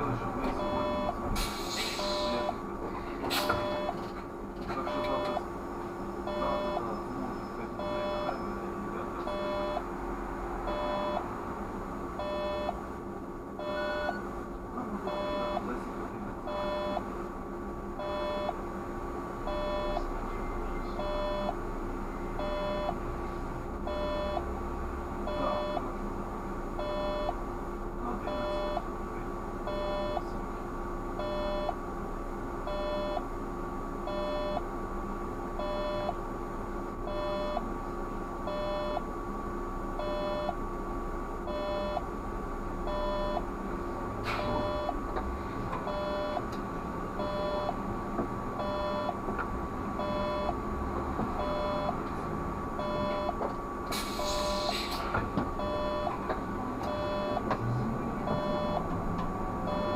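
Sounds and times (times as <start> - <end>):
steady electrical hum: 0.0 - 59.9
short electronic beeps: 0.6 - 1.2, 2.0 - 2.6, 3.5 - 4.0, 4.9 - 5.4, 6.3 - 7.1, 7.8 - 8.6, 9.3 - 9.9, 10.7 - 11.3, 12.2 - 12.8, 13.6 - 14.2, 15.1 - 15.6, 16.5 - 17.0, 18.0 - 18.6, 19.5 - 20.1, 21.0 - 21.6, 22.4 - 23.0, 23.9 - 24.5, 25.3 - 25.9, 26.8 - 27.4, 28.3 - 28.8, 29.7 - 30.2, 31.2 - 31.8, 32.7 - 33.2, 34.1 - 34.6, 35.6 - 36.2, 37.1 - 37.6, 38.5 - 39.0, 40.0 - 40.6, 41.5 - 42.0, 42.9 - 43.4, 44.4 - 45.0, 45.9 - 46.4, 47.2 - 47.8, 48.6 - 49.2, 50.0 - 50.6, 51.4 - 52.0, 52.8 - 53.4, 55.6 - 56.2, 56.9 - 57.4, 58.3 - 58.9, 59.7 - 59.9.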